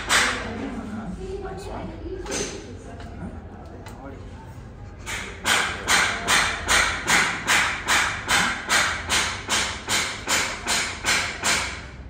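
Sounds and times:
sharp knocks: 0:05.1 - 0:11.9.

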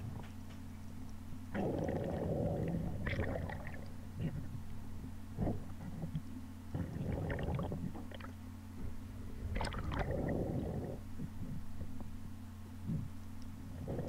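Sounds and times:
steady low hum: 0:00.0 - 0:14.0
water bubbling and gurgling: 0:01.5 - 0:08.4, 0:09.4 - 0:12.2, 0:13.7 - 0:14.0.

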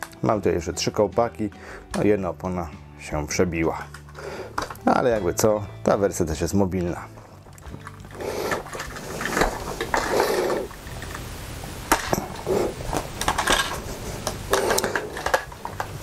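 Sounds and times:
plastic toy bricks clicking: 0:12.9 - 0:16.0.

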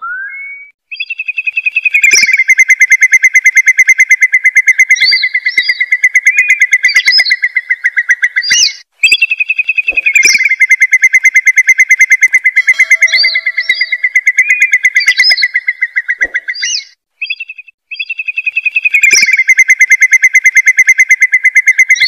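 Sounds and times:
curlew call rapid trill: 0:00.9 - 0:22.0
short higher bird calls: 0:05.0 - 0:19.6.

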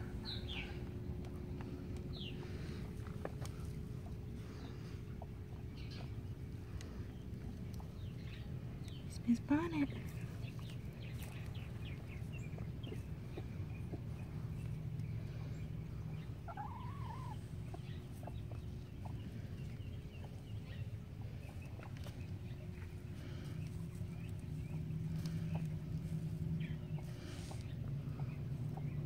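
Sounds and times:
steady low hum: 0:00.0 - 0:29.0
hen calling quietly: 0:15.2 - 0:19.6.

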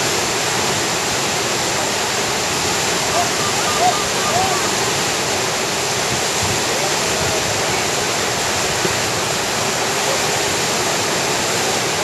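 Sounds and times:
whitewater rapids rushing: 0:00.0 - 0:12.0.

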